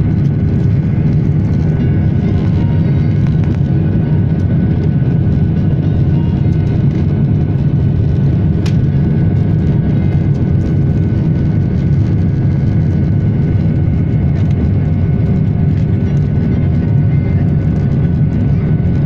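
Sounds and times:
faint steady whine: 0.0 - 19.0
jet engine and airflow rumble in cabin: 0.0 - 19.0.

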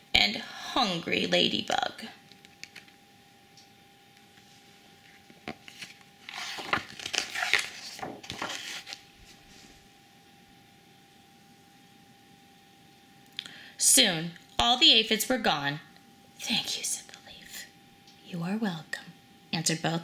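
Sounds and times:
book pages turning: 2.5 - 3.0, 4.3 - 9.8
paper rustling and sliding: 4.4 - 9.8.

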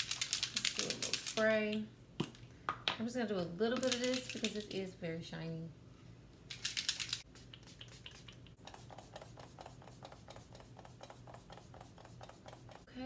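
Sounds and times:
spray bottle misting: 6.7 - 12.8
soft rapid ticks: 7.6 - 12.9.

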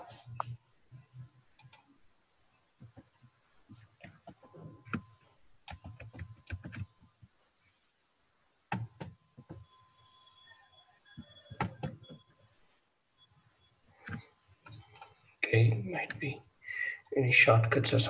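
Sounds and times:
keyboard typing: 0.1 - 1.9, 2.8 - 7.4, 8.7 - 9.7, 11.1 - 12.4, 14.0 - 15.2.

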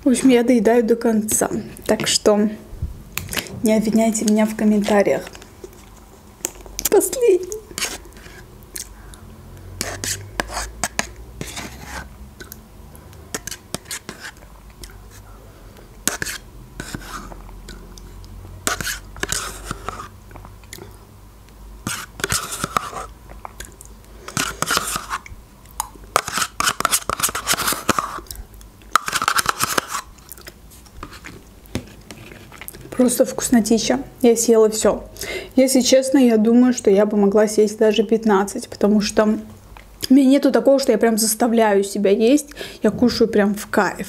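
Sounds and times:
metal spoon scraping plastic cup: 7.6 - 8.5, 9.8 - 12.1, 13.3 - 14.4, 16.1 - 17.4, 18.6 - 20.1, 21.8 - 23.1, 24.3 - 25.2, 26.2 - 28.3, 29.0 - 30.1
mouth sounds of eating: 17.2 - 18.4.

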